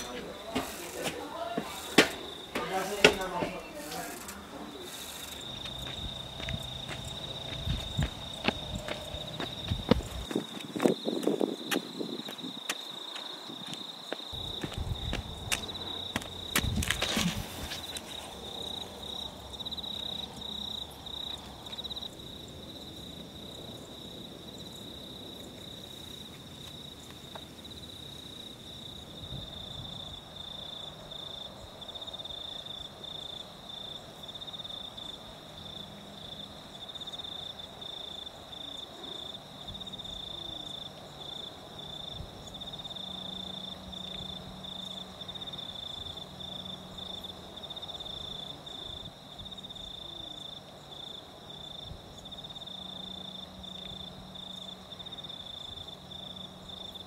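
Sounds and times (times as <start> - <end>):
crickets chirping: 0.0 - 57.0.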